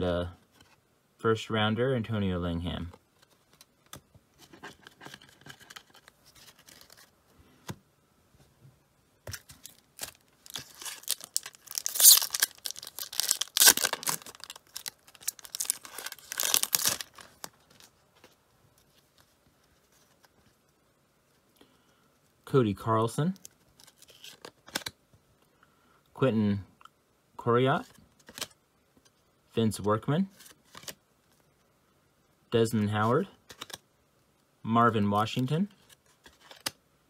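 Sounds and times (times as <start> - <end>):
foil wrapper tearing and crackling: 9.6 - 17.5
cards clicking: 36.2 - 36.8.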